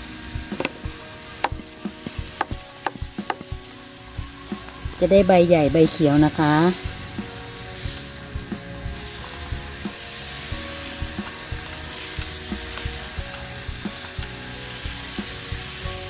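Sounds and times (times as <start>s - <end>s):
steady hiss: 0.0s - 16.0s
spray bottle spritzing: 0.3s - 16.0s.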